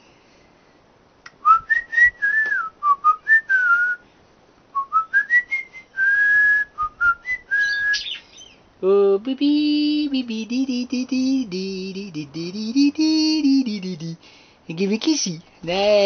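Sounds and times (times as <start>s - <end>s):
person whistling a tune: 1.4s - 4.0s, 4.8s - 8.1s.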